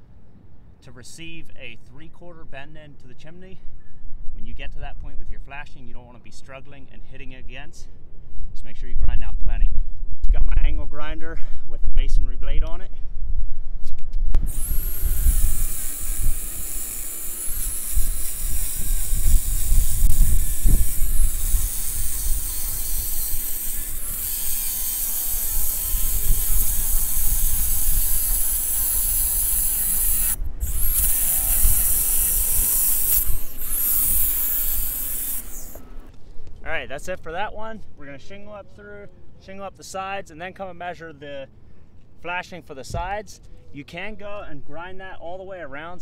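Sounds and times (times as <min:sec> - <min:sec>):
angle grinder cutting brick: 0:14.4 - 0:36.1.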